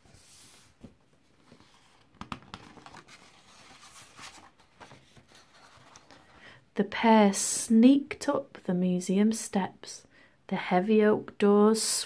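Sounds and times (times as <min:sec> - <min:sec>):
stiff paper pages rustling: 0:00.0 - 0:06.4.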